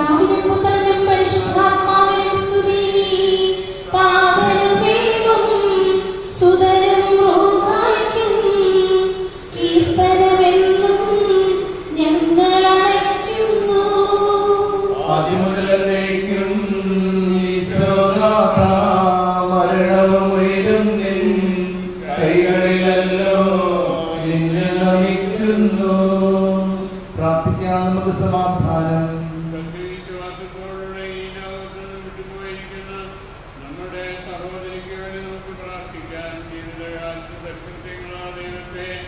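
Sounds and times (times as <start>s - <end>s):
steady low tone: 0.0s - 39.0s
priest chanting into microphone: 3.5s - 6.6s, 13.7s - 39.0s.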